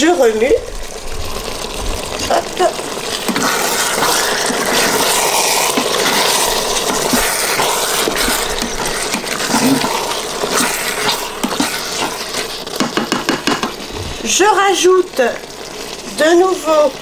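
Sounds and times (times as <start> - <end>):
food sizzling in pot: 0.0 - 17.0
spoon scraping against pot: 3.2 - 13.8.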